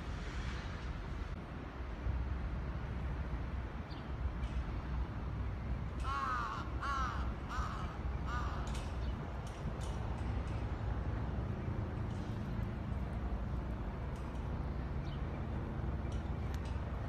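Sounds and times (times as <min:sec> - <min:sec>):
crow cawing: 0:06.0 - 0:08.8.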